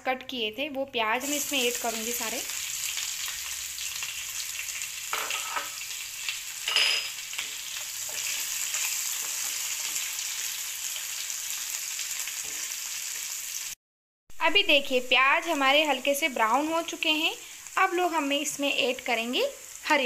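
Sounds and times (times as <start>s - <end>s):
onions sizzling in hot oil: 1.1s - 13.8s, 15.0s - 20.0s
spatula stirring in pan: 7.3s - 10.3s.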